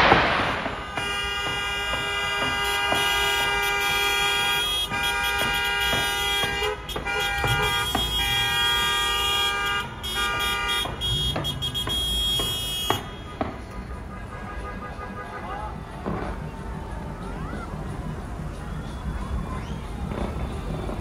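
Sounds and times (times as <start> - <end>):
fireworks bangs and crackle: 0.0 - 14.1, 15.7 - 21.0
car horns blasting: 0.3 - 15.8.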